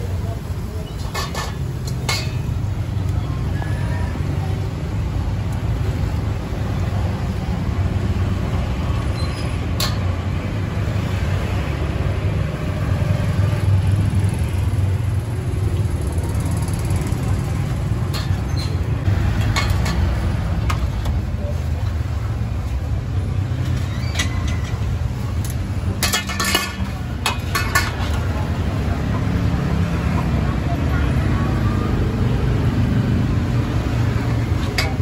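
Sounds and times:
street traffic rumble: 0.0 - 35.0.

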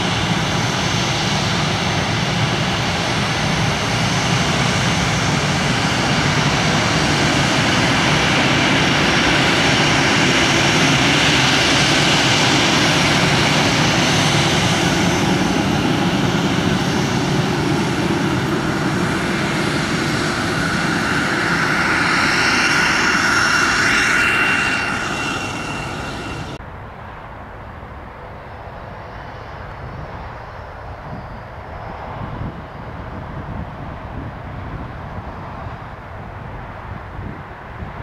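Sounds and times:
jet engines whining: 0.0 - 26.6.

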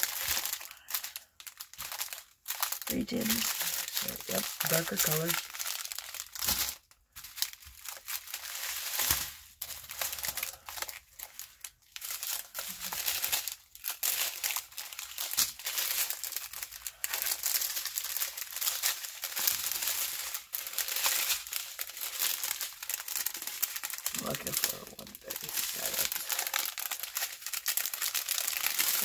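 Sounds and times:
plastic bags crinkling: 0.0 - 29.0.

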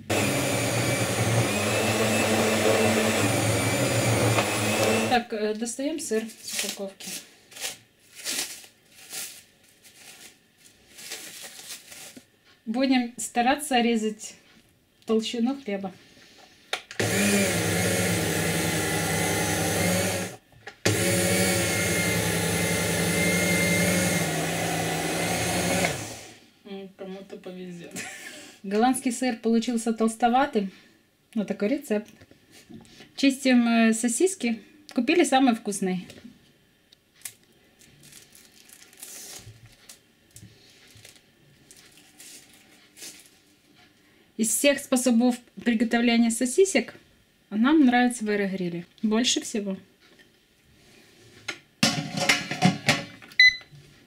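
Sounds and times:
food slicer motor humming: 0.0 - 5.2, 17.0 - 26.4
plastic film crackling: 6.2 - 12.3, 37.2 - 40.0, 40.9 - 43.4.

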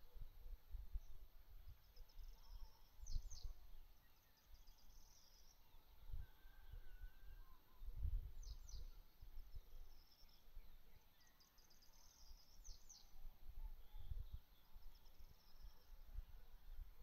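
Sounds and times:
small birds chirping: 0.1 - 6.0, 8.3 - 16.4
wind rumbling on microphone: 6.0 - 9.7, 12.6 - 17.0.

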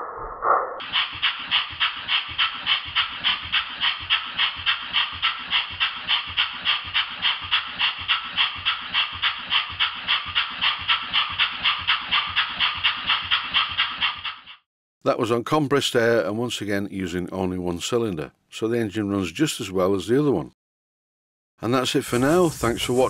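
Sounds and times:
model steam engine chuffing: 0.8 - 14.6.

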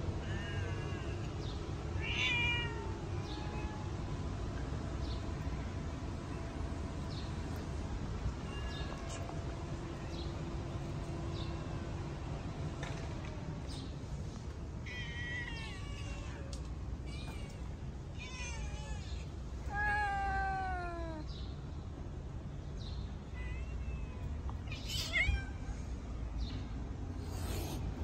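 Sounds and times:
low background rumble: 0.0 - 28.0
cats meowing: 0.2 - 4.0, 8.4 - 10.1, 14.8 - 21.3, 23.3 - 25.8.

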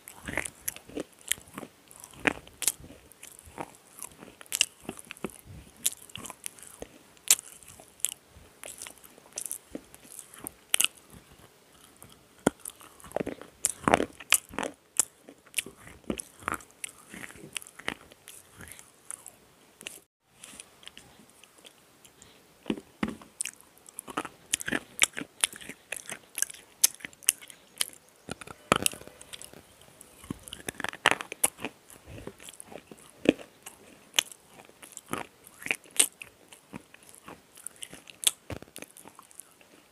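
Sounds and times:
crunchy biting and chewing: 0.0 - 39.9.

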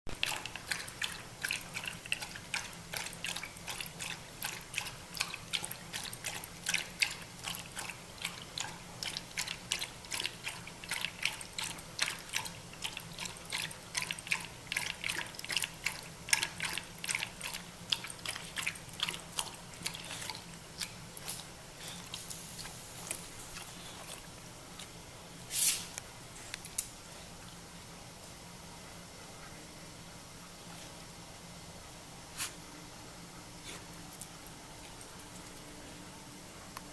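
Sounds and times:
dog lapping water: 0.1 - 25.0.

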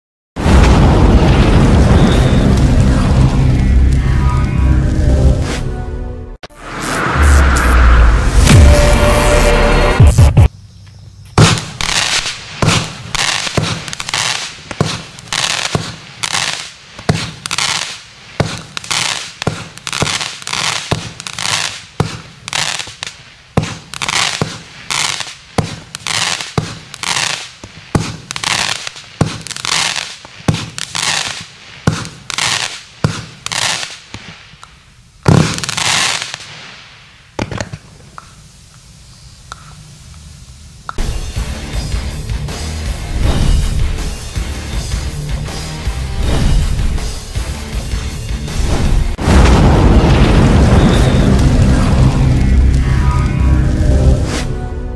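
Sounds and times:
faint firework pops: 11.4 - 16.0, 17.0 - 17.6, 18.4 - 18.8, 20.8 - 28.4, 29.2 - 29.6, 30.2 - 35.8, 37.4 - 38.4
fireworks cake firing shots: 11.4 - 34.6, 35.2 - 38.0.

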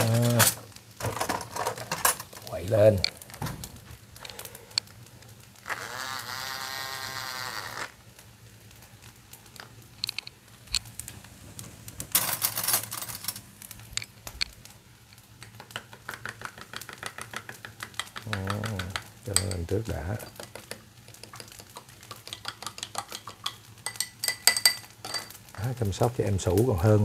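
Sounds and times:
spoon clinking in glass: 22.4 - 25.3.

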